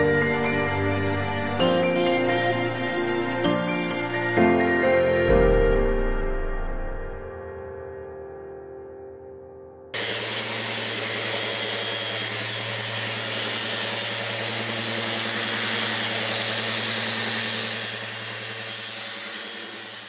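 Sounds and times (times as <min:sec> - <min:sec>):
power tool motor running: 0:01.6 - 0:04.4, 0:10.0 - 0:20.0.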